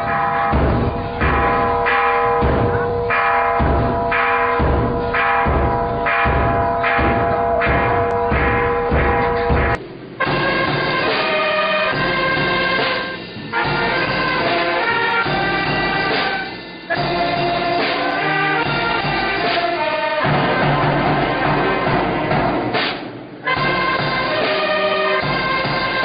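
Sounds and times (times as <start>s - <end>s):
brass band with saxophones: 9.0s - 26.0s.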